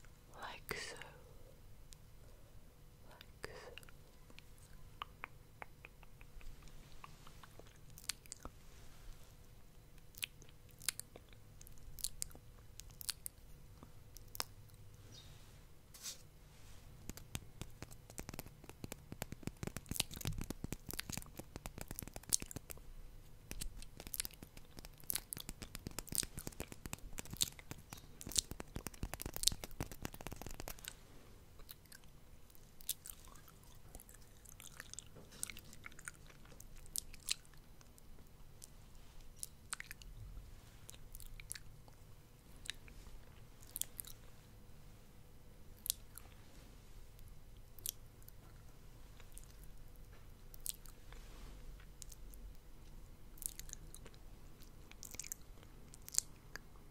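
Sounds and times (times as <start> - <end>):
wet lip and tongue clicks: 3.8 - 8.6, 10.0 - 14.6, 17.0 - 22.8, 23.4 - 31.0, 39.4 - 40.1, 47.6 - 48.4, 50.5 - 51.0, 53.4 - 56.7.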